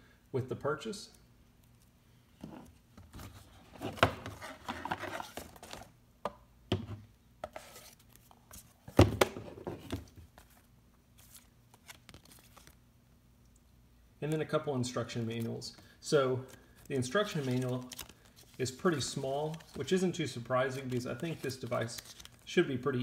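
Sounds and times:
cardboard and paper rustling: 0:03.0 - 0:05.9, 0:07.4 - 0:12.8, 0:15.4 - 0:22.5.

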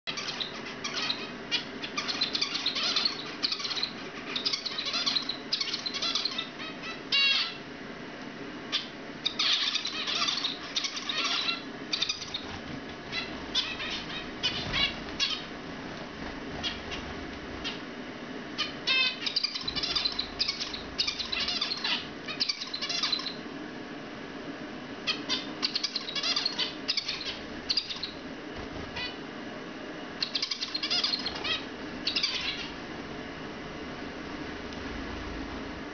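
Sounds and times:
low steady hum: 0:00.0 - 0:35.9
finches chirping: 0:00.1 - 0:07.6, 0:08.7 - 0:15.6, 0:16.4 - 0:17.8, 0:18.6 - 0:23.5, 0:25.0 - 0:28.3, 0:30.2 - 0:32.9.

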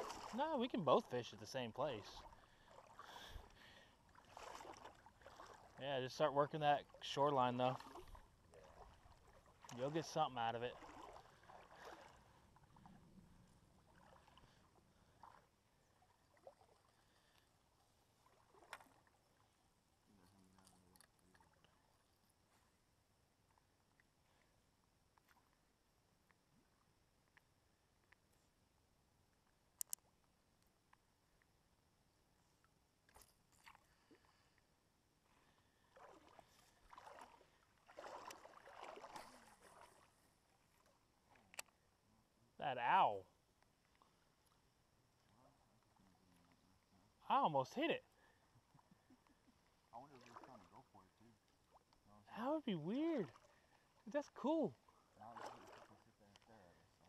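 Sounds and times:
faint low hum: 0:00.0 - 0:42.6, 0:43.2 - 0:47.3
faint river water: 0:00.0 - 0:57.0
small clicks: 0:29.8 - 0:31.5.

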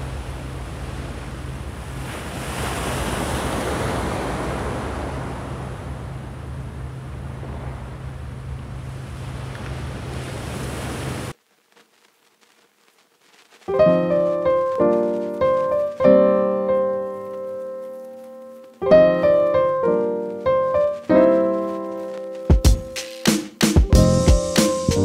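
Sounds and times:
ocean waves surf: 0:00.0 - 0:11.4, 0:13.8 - 0:18.3, 0:18.9 - 0:22.4
solo piano music: 0:13.7 - 0:25.0.

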